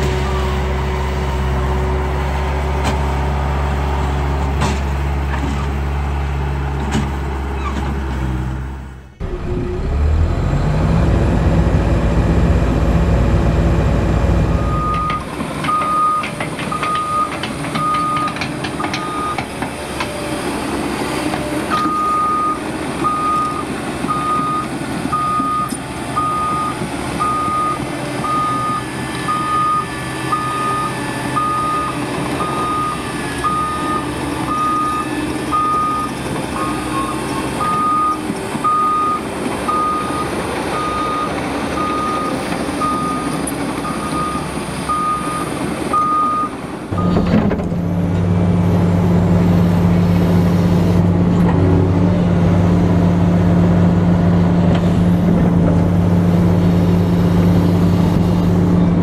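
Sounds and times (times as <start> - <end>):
simulated engine sound: 8.6 - 14.9.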